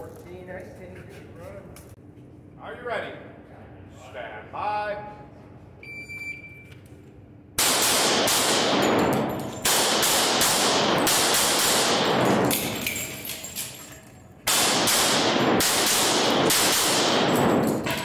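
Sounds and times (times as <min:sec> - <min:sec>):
pistol shots echoing indoors: 0:07.6 - 0:18.0.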